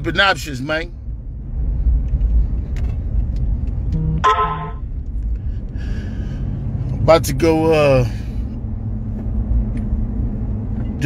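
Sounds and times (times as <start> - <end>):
car engine and road noise: 0.0 - 11.0
car horn toot: 4.0 - 4.8.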